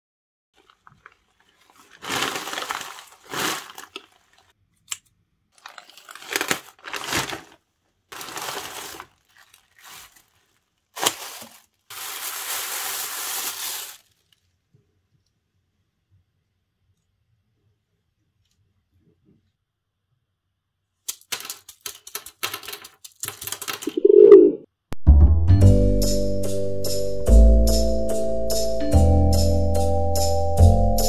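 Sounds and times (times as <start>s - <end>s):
plastic mailer bag crinkling: 0.6s - 4.5s, 5.6s - 14.6s.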